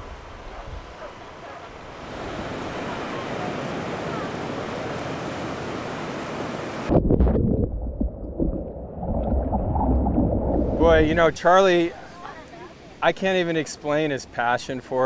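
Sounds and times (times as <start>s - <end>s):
churning water rush: 0.0s - 7.0s, 7.8s - 15.0s
ocean surf breaking: 0.0s - 7.0s, 8.4s - 14.5s
wind buffeting microphone: 6.9s - 11.4s.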